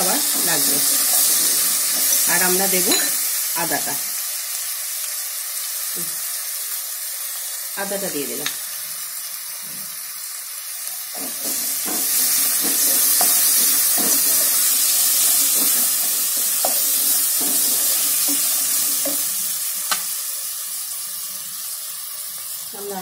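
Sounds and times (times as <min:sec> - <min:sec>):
vegetables sizzling in hot oil: 0:00.0 - 0:23.0
spatula scraping and knocking pan: 0:11.1 - 0:20.1.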